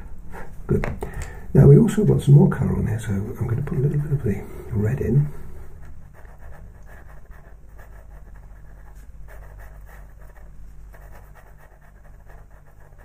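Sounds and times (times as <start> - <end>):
low steady hum: 0.0 - 13.0
pencil scratching on paper: 6.1 - 13.0.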